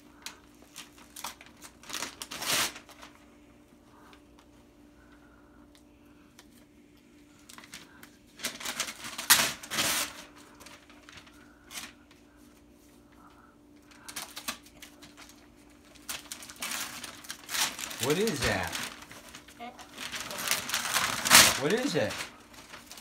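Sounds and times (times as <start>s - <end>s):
wrapping paper tearing: 0.2s - 3.2s, 7.4s - 12.0s, 13.9s - 23.0s.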